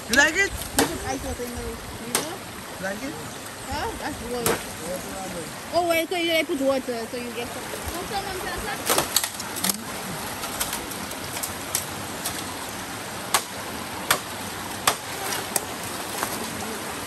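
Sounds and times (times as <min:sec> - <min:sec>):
stream rushing: 0:00.0 - 0:17.0
bamboo pole cracking and knocking: 0:08.8 - 0:09.8, 0:10.4 - 0:12.5, 0:13.3 - 0:16.5.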